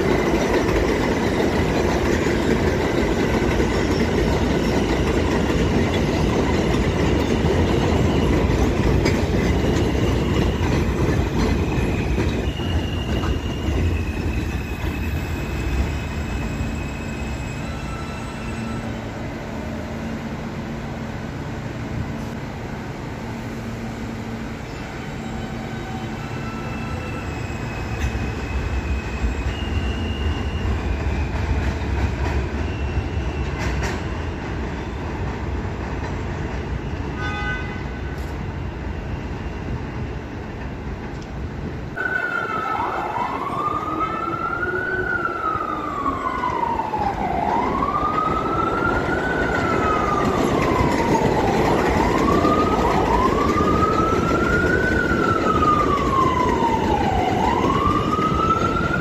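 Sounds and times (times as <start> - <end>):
subway train rumbling: 0.0 - 59.0
siren wailing: 42.0 - 59.0.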